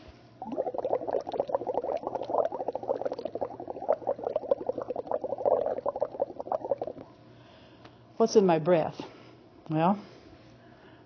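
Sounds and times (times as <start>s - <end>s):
bubbling through straw: 0.4s - 7.1s.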